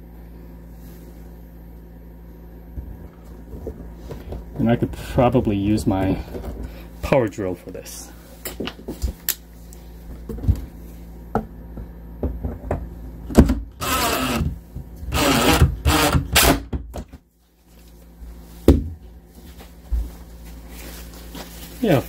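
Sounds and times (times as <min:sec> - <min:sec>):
power drill driving screw into wood: 0:13.8 - 0:14.5, 0:15.1 - 0:16.7.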